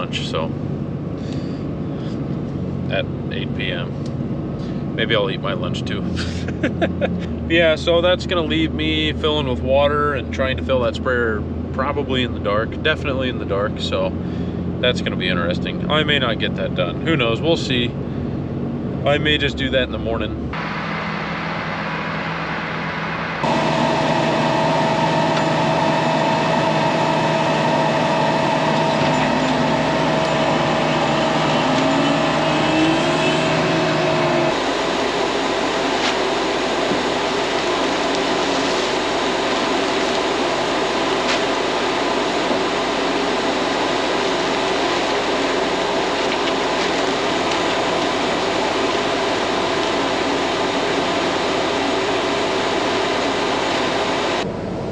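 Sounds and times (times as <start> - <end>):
vehicle engine running: 0.0 - 54.9
whine rising in pitch: 20.5 - 54.9.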